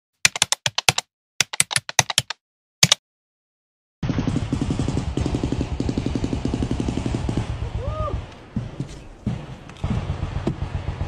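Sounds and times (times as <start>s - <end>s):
keyboard key clicks: 0.3s - 3.0s.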